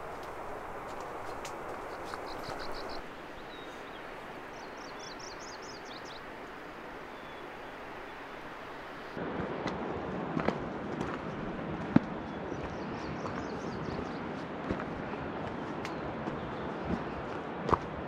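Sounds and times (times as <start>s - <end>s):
footsteps on gravel: 0.0s - 3.0s
songbird singing: 0.0s - 9.2s, 12.2s - 14.3s
outdoor background rush: 0.0s - 18.0s.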